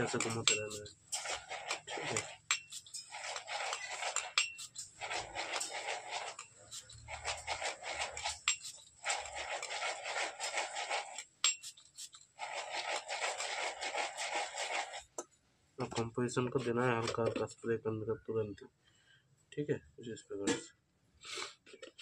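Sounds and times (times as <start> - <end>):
granules rattling in metal cup: 0.0 - 15.1.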